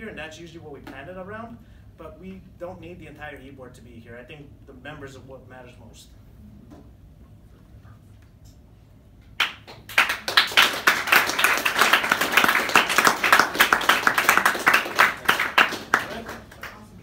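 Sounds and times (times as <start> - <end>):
people applauding: 9.4 - 17.0.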